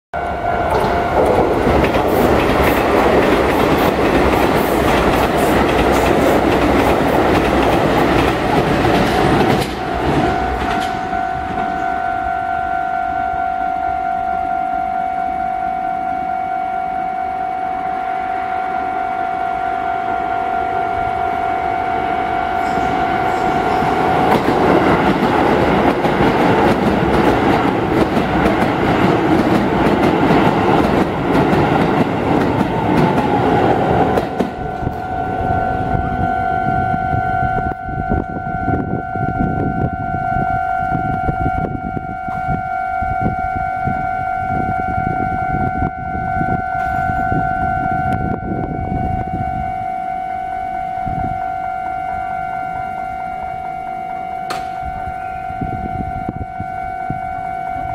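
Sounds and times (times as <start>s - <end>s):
crossing warning bell ringing: 0.2s - 57.9s
electric train rumbling past: 0.2s - 57.9s
wheels clacking on rail joints: 0.7s - 11.9s, 22.6s - 35.1s.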